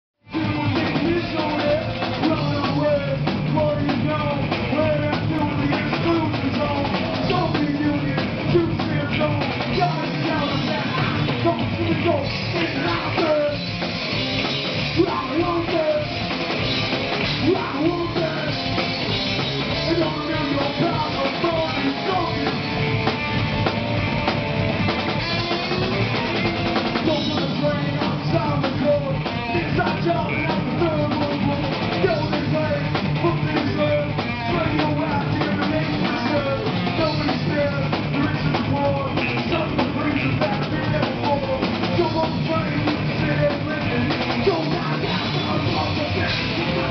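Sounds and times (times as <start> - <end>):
bass guitar: 0.2 - 46.9
drum kit: 0.2 - 46.9
electric guitar: 0.2 - 46.9
person singing into microphone: 27.0 - 46.9.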